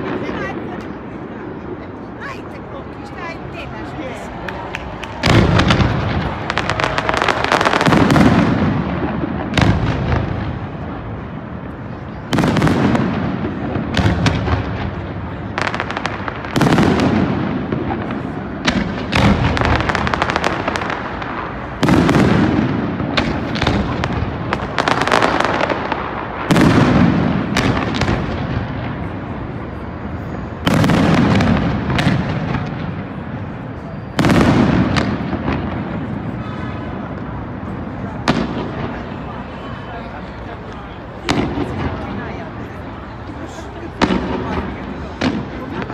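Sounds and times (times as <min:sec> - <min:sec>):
firework crackling: 0:00.0 - 0:45.9
firework shells booming: 0:04.9 - 0:11.4, 0:12.3 - 0:29.3, 0:30.6 - 0:39.2, 0:43.8 - 0:45.9.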